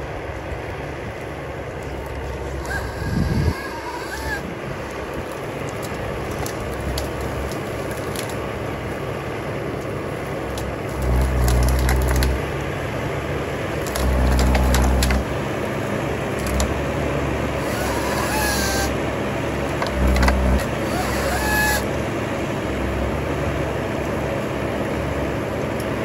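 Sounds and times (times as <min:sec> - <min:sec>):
harvester engine and hydraulics: 0:00.0 - 0:26.0
wood cracking and snapping: 0:01.7 - 0:09.1, 0:09.8 - 0:12.7, 0:13.7 - 0:15.4, 0:16.3 - 0:16.9, 0:17.5 - 0:19.0, 0:19.7 - 0:21.9.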